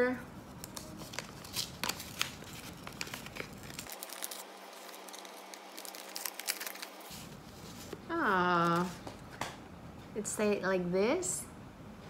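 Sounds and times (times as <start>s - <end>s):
paper envelope crinkling: 0.5s - 9.0s.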